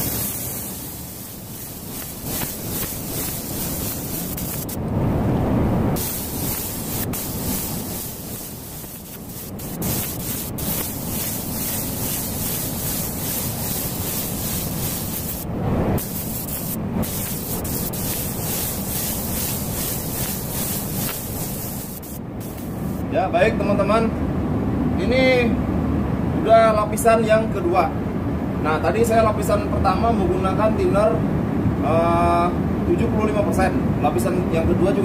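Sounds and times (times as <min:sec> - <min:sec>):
spray gun hissing: 0:00.0 - 0:04.8, 0:06.0 - 0:23.0.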